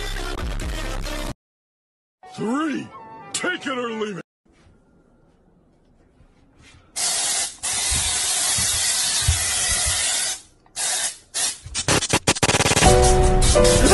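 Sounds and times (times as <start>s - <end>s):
aerosol spray can hissing: 7.0s - 13.9s.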